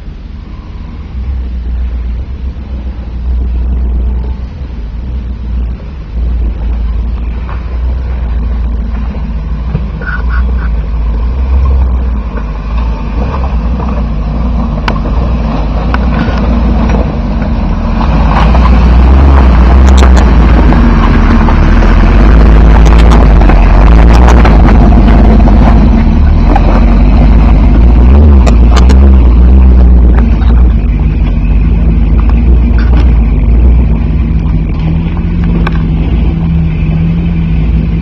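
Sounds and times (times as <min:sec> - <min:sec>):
off-road engine rumbling: 0:00.0 - 0:38.0.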